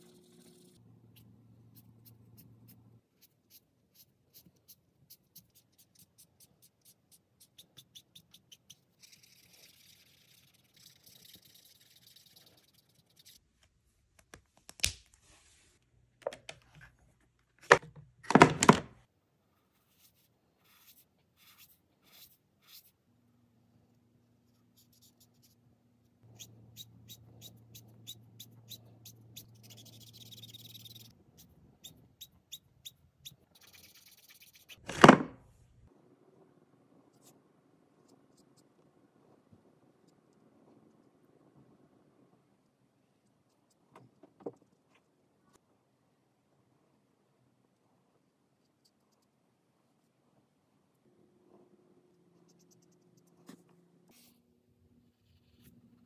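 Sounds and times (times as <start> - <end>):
markers stroking across paper: 0.0 - 13.4, 19.6 - 23.0, 26.2 - 34.8.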